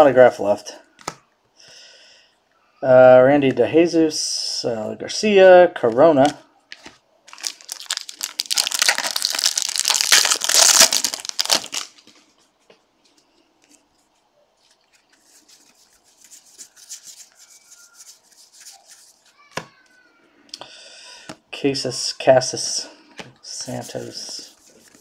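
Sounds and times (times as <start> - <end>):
plastic wrapper crinkling and tearing: 6.2 - 12.3.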